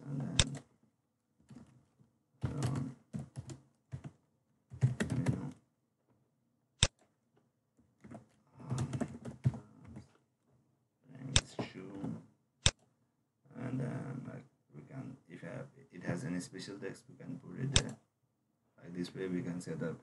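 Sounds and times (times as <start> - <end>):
computer keyboard typing: 0.2 - 0.7, 2.4 - 5.6, 8.0 - 10.2.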